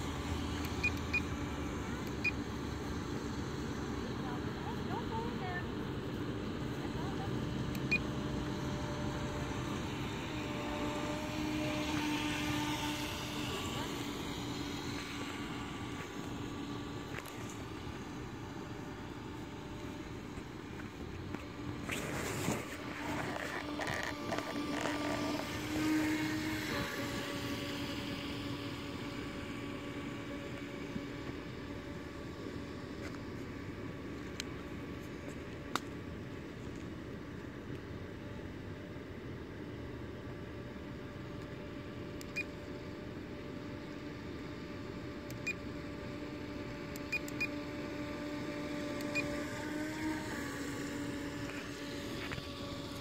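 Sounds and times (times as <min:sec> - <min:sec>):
toy boat motor whine: 0:06.4 - 0:33.0, 0:43.6 - 0:53.0.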